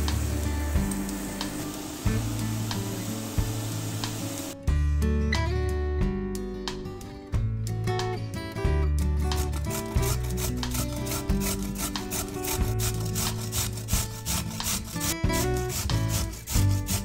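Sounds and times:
soft background music: 0:00.0 - 0:17.0
carrot rasping on grater: 0:09.4 - 0:17.0.

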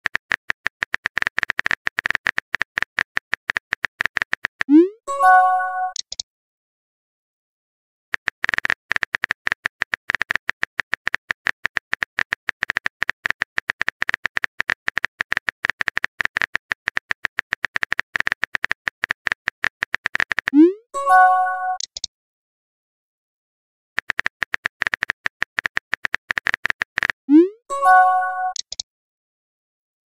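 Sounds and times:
simulated keyboard clicks: 0:00.0 - 0:04.9, 0:05.8 - 0:06.2, 0:08.1 - 0:20.7, 0:21.6 - 0:22.1, 0:24.0 - 0:28.9.

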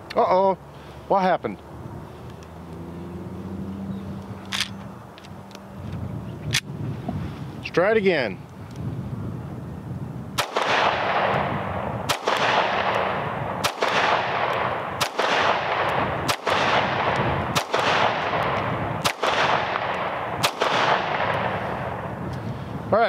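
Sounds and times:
pistol shots with echo: 0:10.4 - 0:22.2.

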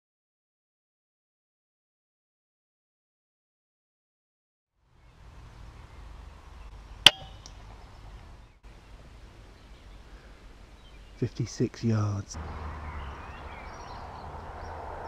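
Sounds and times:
low background hiss: 0:04.8 - 0:12.4.

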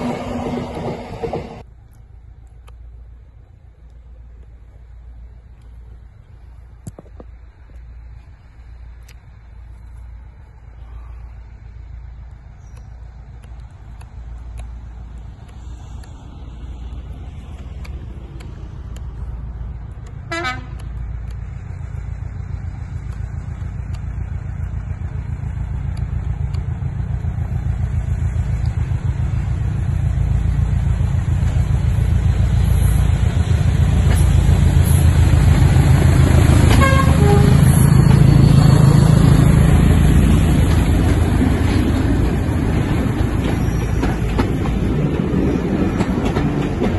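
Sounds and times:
diesel locomotive engines: 0:00.0 - 0:46.9
short horn toot: 0:36.7 - 0:37.9.

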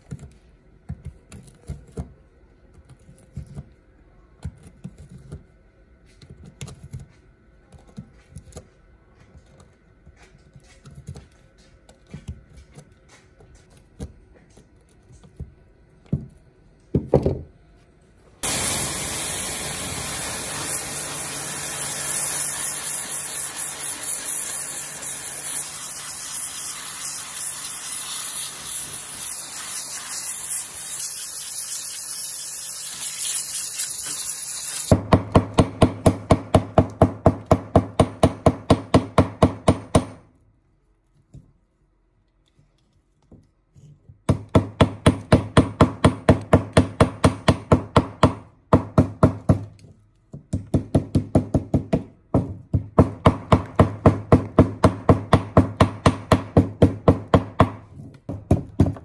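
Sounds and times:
steady spraying hiss: 0:18.4 - 0:35.0.

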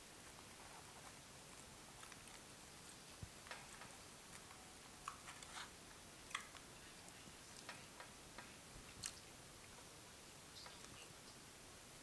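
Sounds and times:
microphone hiss: 0:00.0 - 0:12.0
chewing: 0:01.5 - 0:08.1, 0:08.8 - 0:09.8.

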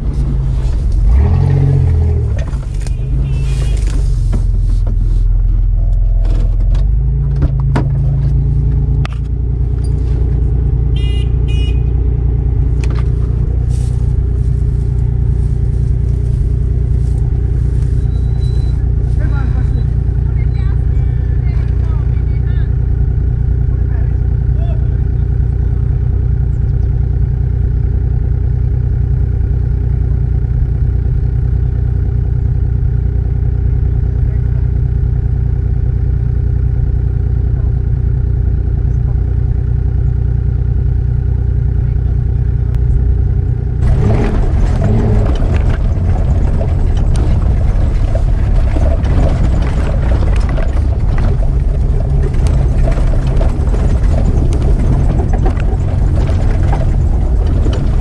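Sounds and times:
car engine idling: 0:00.0 - 0:58.0
engine running rough on dirt trail: 0:00.0 - 0:58.0.

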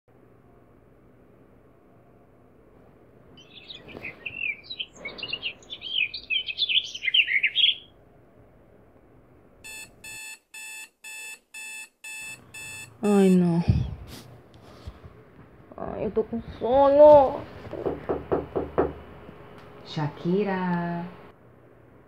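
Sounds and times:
birds chirping and warbling: 0:03.4 - 0:08.0
phone alarm beeping: 0:09.6 - 0:13.5.

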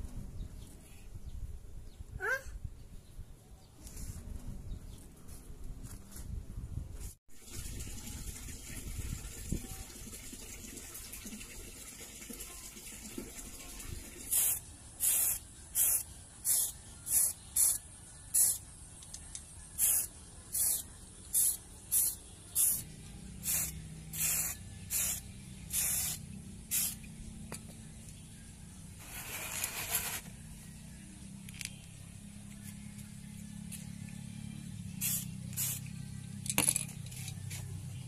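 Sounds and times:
spray can hissing bursts: 0:14.2 - 0:18.6, 0:19.8 - 0:27.1, 0:35.0 - 0:35.9.

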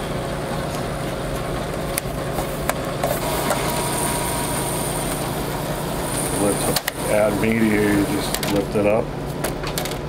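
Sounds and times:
low mechanical hum: 0:00.0 - 0:10.0
plastic clicks of printer tray: 0:08.2 - 0:08.6.

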